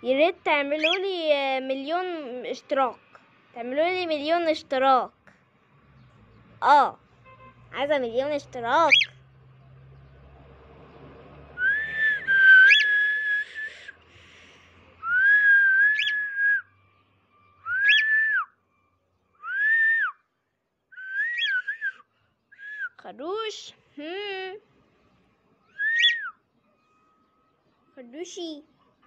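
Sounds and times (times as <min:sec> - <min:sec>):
cockatiel whistling: 0:11.6 - 0:13.8, 0:15.0 - 0:16.6, 0:17.6 - 0:18.5, 0:21.0 - 0:22.0, 0:25.7 - 0:26.4.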